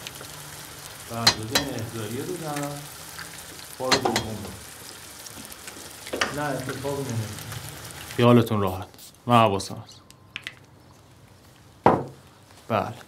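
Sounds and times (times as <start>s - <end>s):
eggs sizzling in a pan: 0.0s - 13.0s
utensil knocking against pan: 1.2s - 1.7s, 3.9s - 4.3s.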